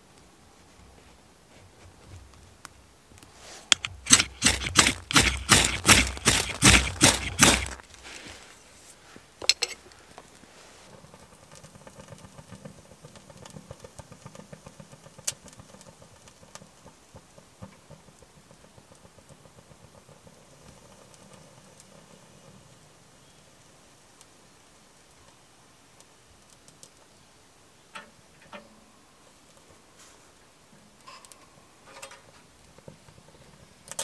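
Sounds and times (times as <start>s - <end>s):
kindling crackling in stove: 0.6s - 34.0s
ferro rod scraping: 3.3s - 9.8s.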